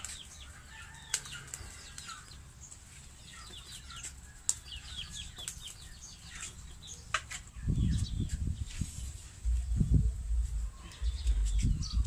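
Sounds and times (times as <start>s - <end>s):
low rumble on microphone: 7.6s - 12.0s
birds chirping high notes: 9.6s - 12.0s.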